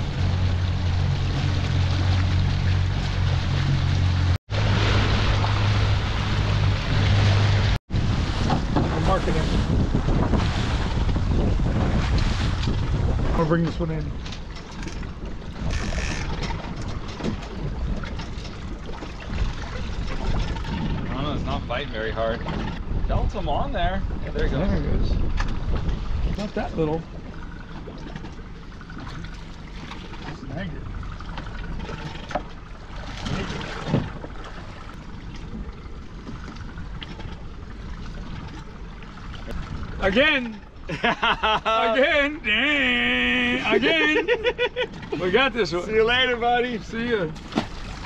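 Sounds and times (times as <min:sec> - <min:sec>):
wind buffeting microphone: 0:00.0 - 0:40.2
outboard motor running: 0:00.0 - 0:48.0
water washing past boat: 0:00.0 - 0:48.0
splashing knock on hull: 0:07.9 - 0:13.4, 0:47.3 - 0:48.0.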